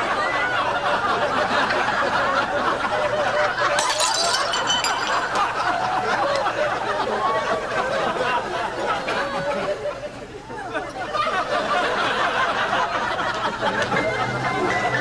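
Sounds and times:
glass clink: 3.8s - 6.4s.

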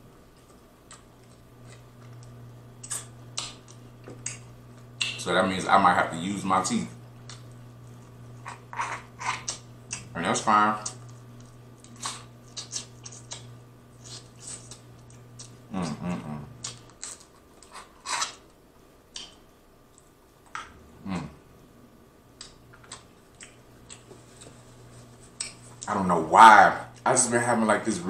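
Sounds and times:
voiced hums or slurps: 11.8s - 17.0s, 21.0s - 21.5s.

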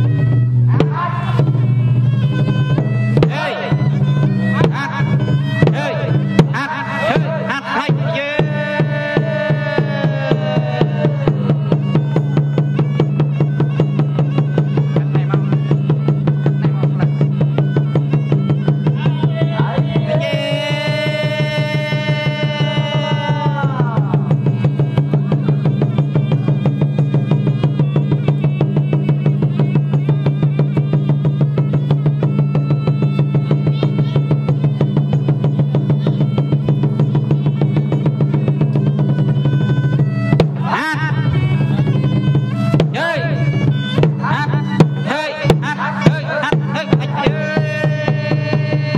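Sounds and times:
fast drum and percussion pulse: 0.0s - 48.9s
long held melodic note: 33.1s - 45.1s.

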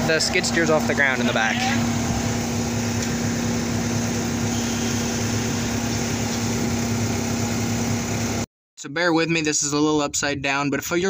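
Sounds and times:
skid steer engine humming: 0.0s - 8.4s.

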